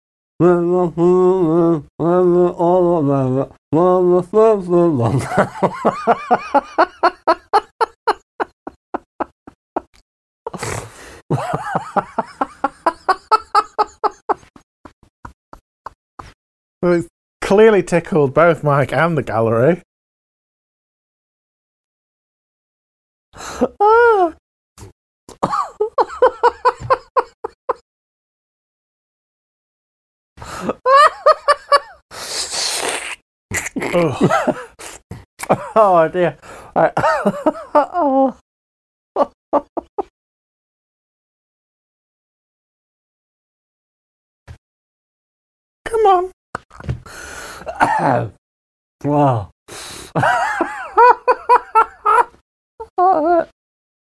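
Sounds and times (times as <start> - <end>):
man laughing helplessly: 5.0 - 9.9, 11.3 - 14.6, 23.4 - 24.4, 25.4 - 27.8, 30.4 - 32.0, 33.9 - 35.9, 36.8 - 38.4, 39.2 - 40.1, 47.7 - 48.3, 50.2 - 52.4
breathy wheeze: 47.0 - 47.8.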